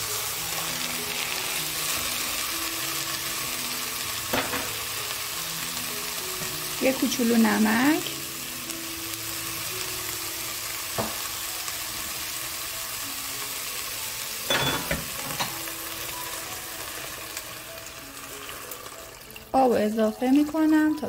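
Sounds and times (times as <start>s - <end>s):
food sizzling in a pot: 0.0s - 21.0s.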